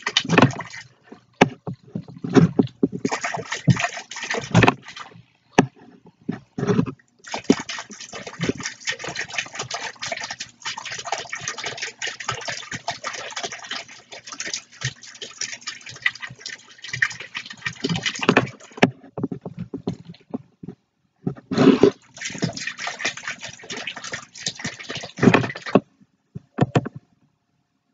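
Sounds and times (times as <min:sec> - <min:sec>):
fountain jet splashing into water: 0:00.0 - 0:01.0, 0:02.7 - 0:05.2, 0:07.2 - 0:18.8, 0:22.0 - 0:25.8.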